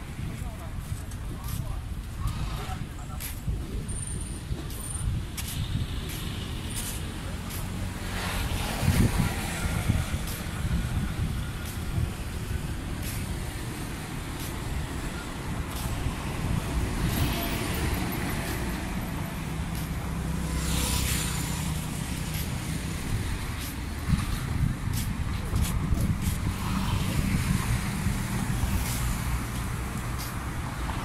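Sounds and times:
road traffic rumble: 0.0 - 31.0.

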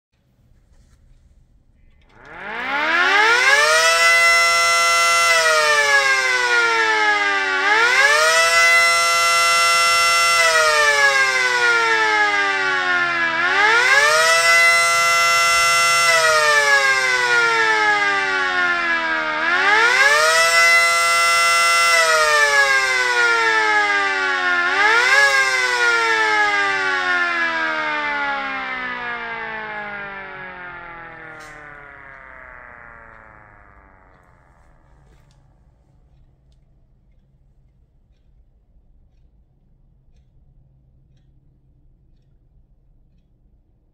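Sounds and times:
siren winding up and wailing: 2.0 - 36.1.

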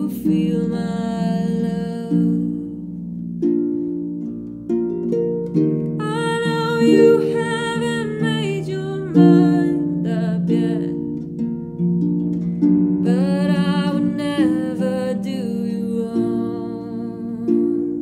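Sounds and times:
person singing: 0.0 - 3.0, 6.0 - 11.4, 13.0 - 18.0
harp playing chords: 0.0 - 18.0.

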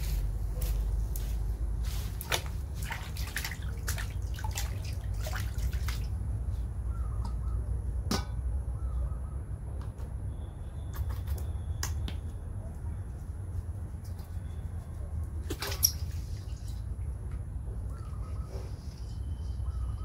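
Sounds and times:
water splashing in a steel basin: 2.2 - 6.2, 15.4 - 16.5.

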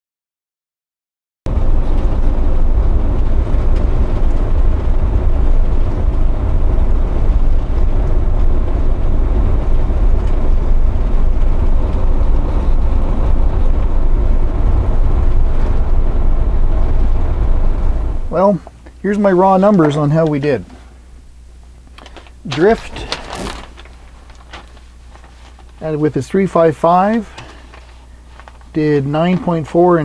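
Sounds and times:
road and wind noise: 1.5 - 18.4
diesel engine drone: 1.5 - 30.0.

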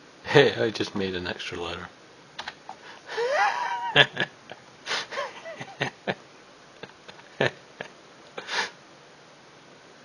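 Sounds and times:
sharp clicks: 2.4 - 2.7
breathy sniffs: 4.9 - 5.3, 8.4 - 8.8.

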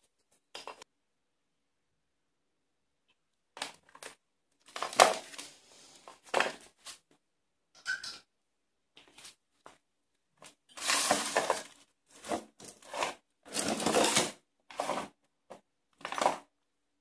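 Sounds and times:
bags rustling: 10.8 - 15.1.

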